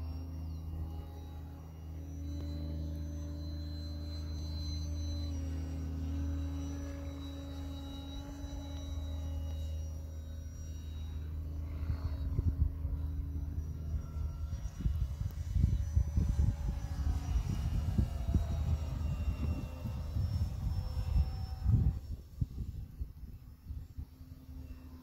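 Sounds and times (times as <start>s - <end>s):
model airplane motor droning: 0.0s - 25.0s
wind buffeting microphone: 14.2s - 24.2s.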